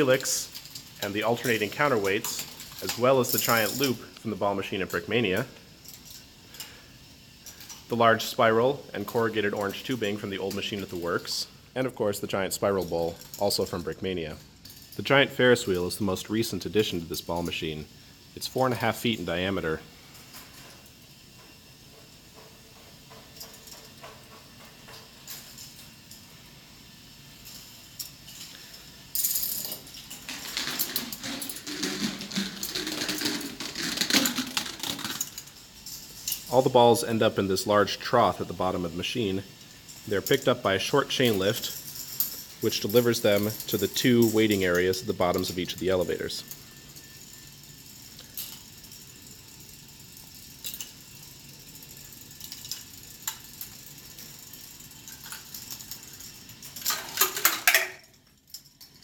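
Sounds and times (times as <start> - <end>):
balls rolling on plastic tracks: 0.0 - 59.0
plastic balls clattering on tracks: 28.0 - 36.7, 52.1 - 59.0.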